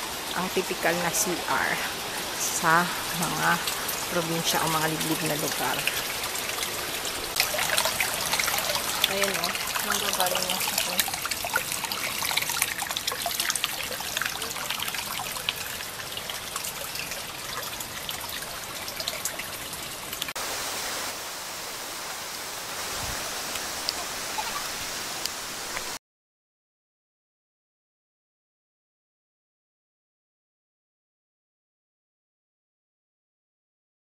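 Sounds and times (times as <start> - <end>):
water dripping: 0.0 - 20.4, 22.0 - 26.0
steady water hiss: 0.0 - 26.0
water trickling and splashing: 0.0 - 26.0.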